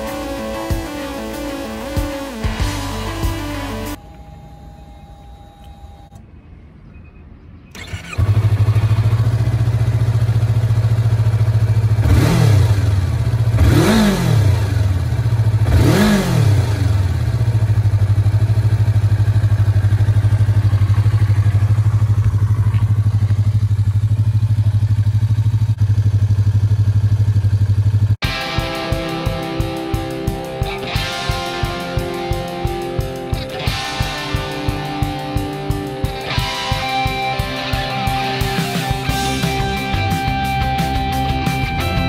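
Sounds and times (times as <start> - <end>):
engine revving: 0.0 - 4.0, 7.7 - 19.3, 28.2 - 42.0
motorcycle engine starting and idling: 7.7 - 42.0.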